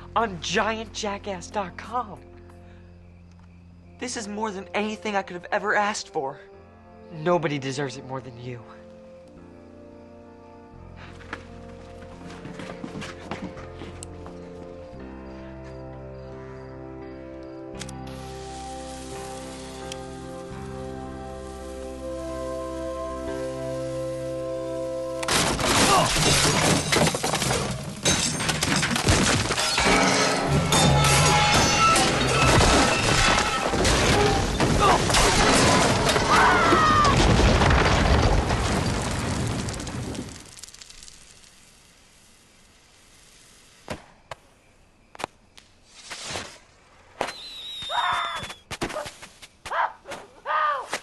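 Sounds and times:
music playing: 0.0 - 26.5, 29.8 - 35.6
fireworks crackling bangs: 18.1 - 22.0, 36.9 - 44.5
wood breaking: 25.2 - 41.7
glass shattering: 25.3 - 39.7
short high squeals: 47.3 - 48.7.

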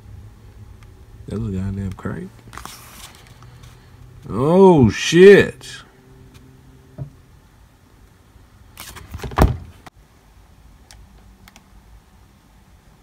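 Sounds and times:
book pages rustling: 1.8 - 3.9, 8.8 - 9.5.

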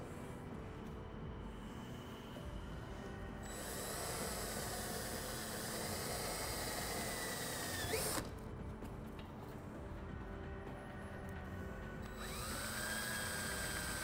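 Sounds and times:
cordless drill whining: 3.4 - 8.3, 12.0 - 14.0.

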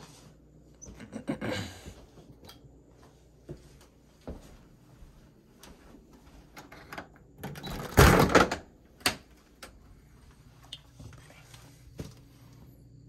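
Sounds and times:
door rattling free of frame: 7.4 - 8.7.

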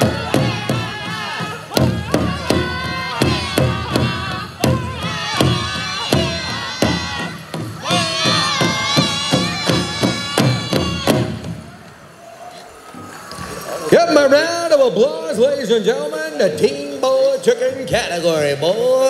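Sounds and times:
men singing together: 0.0 - 8.9
steady large drumbeat: 0.0 - 11.9.

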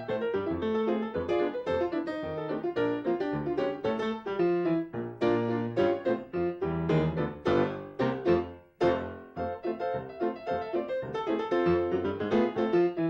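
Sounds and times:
solo piano music: 0.0 - 13.0.

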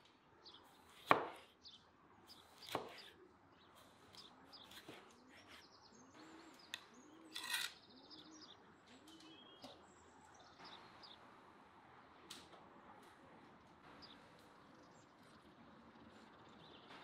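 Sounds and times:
small birds chirping: 0.0 - 11.3, 12.9 - 17.0
dove cooing: 6.0 - 9.6.

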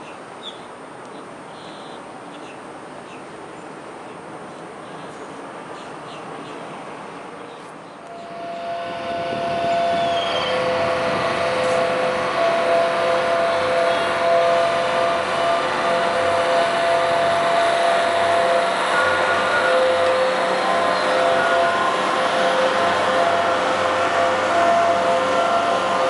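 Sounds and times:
boat engine droning: 6.7 - 26.0
held humming tones: 8.0 - 26.0.

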